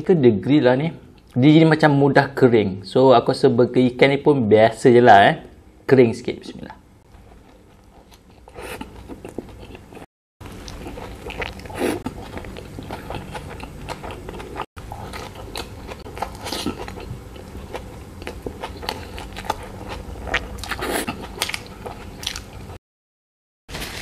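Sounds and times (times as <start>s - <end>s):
biting and chewing burger: 7.1s - 22.8s.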